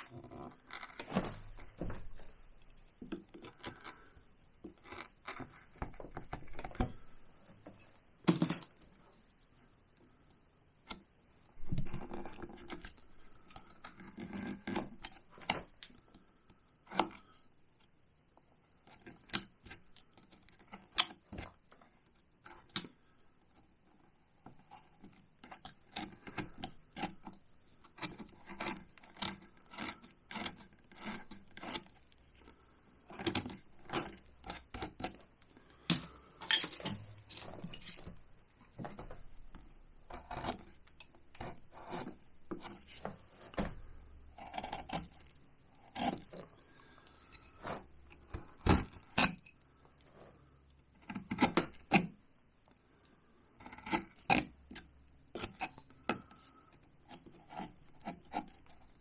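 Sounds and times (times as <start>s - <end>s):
carving tool cutting bark: 12.0s - 16.0s, 24.6s - 36.2s, 39.5s - 43.0s, 44.4s - 46.4s, 51.0s - 52.2s, 53.6s - 59.0s.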